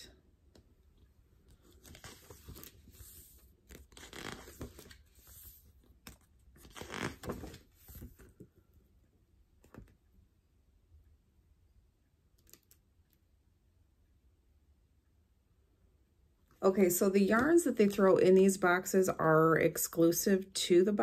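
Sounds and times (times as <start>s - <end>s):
paper pages rustling: 1.4s - 8.4s.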